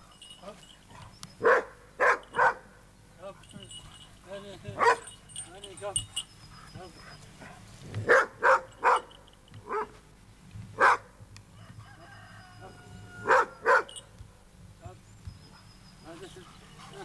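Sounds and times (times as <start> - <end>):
dog barking: 0.9 - 2.8, 4.8 - 5.2, 6.1 - 10.0, 10.8 - 11.1, 13.1 - 14.0.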